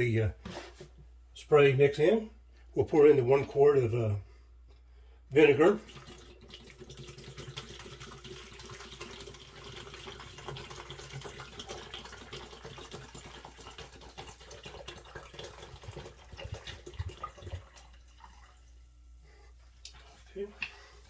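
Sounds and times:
liquid pouring into plastic container: 5.6 - 18.8.

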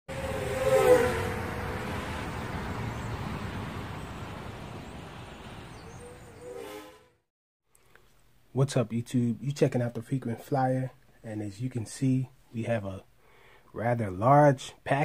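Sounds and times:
rushing whoosh with gliding tones: 0.1 - 7.2.

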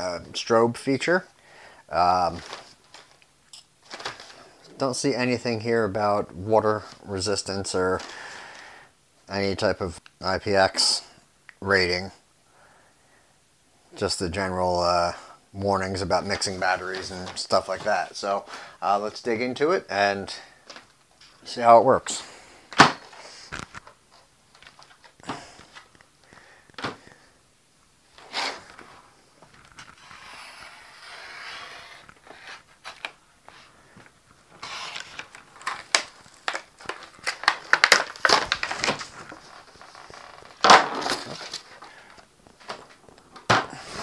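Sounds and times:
plastic packaging crinkling: 2.3 - 4.4, 33.9 - 43.6.

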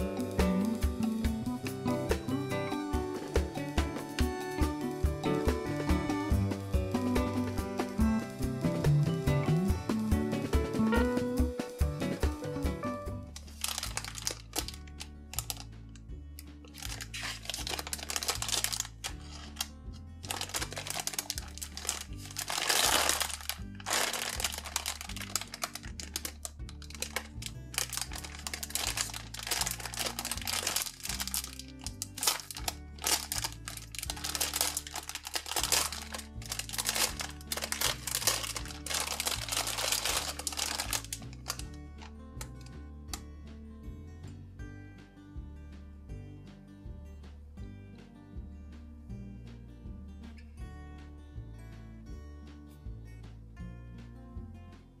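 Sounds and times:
background music with bass line: 0.0 - 55.0
plastic bag crinkling: 13.4 - 15.7, 16.7 - 19.7, 20.3 - 41.8.

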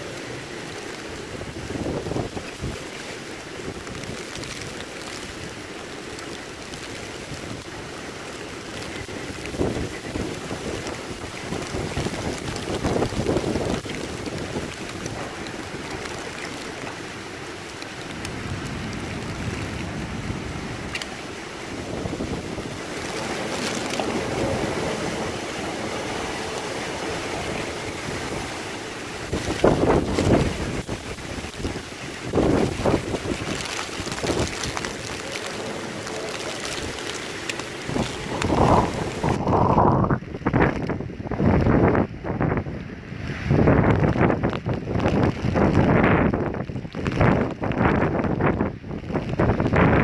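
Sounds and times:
strong wind gust: 0.0 - 5.6, 6.5 - 50.0
rain ticks striking: 0.0 - 50.0
wind-driven rain rushing: 0.0 - 50.0.

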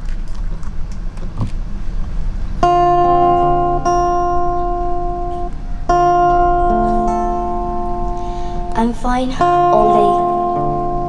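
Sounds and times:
acoustic guitar chords strummed: 2.6 - 11.0.

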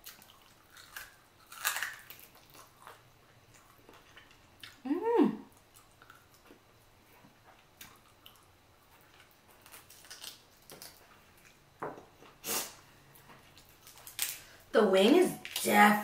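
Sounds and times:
chewing and mouth clicks: 0.0 - 4.8, 5.5 - 11.6
person humming: 4.8 - 5.4.

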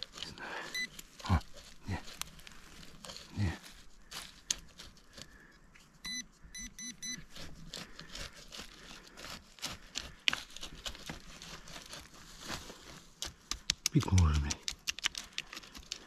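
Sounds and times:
probe scraping through dirt: 0.0 - 16.0
metal detector short beeps: 6.0 - 7.2.

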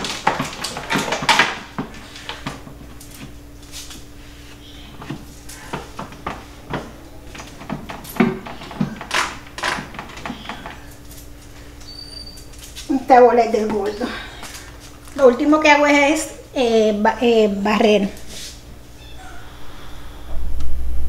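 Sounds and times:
kitchen appliances knocking on wooden shelf: 0.0 - 2.9, 4.9 - 10.9.

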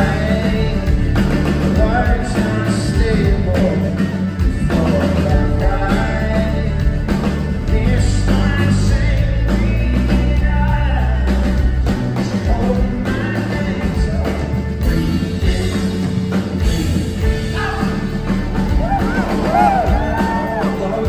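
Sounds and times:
person singing lead vocal: 0.0 - 16.1, 16.9 - 21.0
live folk-rock band: 0.0 - 21.0.

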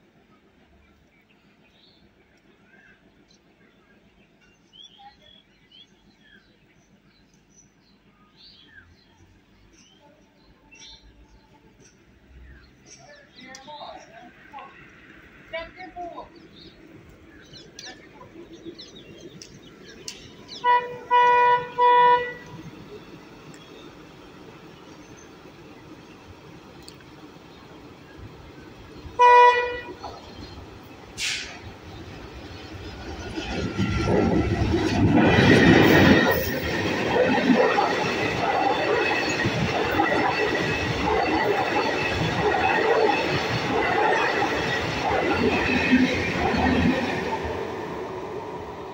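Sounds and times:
diesel locomotive passing: 0.0 - 48.9
birds chirping: 0.2 - 48.9
train horn blasts: 20.5 - 22.6, 29.2 - 30.1
train wheels clattering on rails: 29.8 - 47.8.

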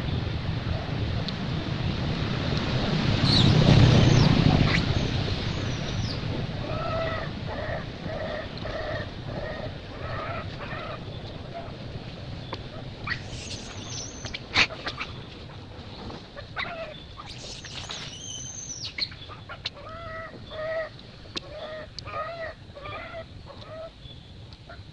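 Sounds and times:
baby monkey crying: 6.6 - 11.7.

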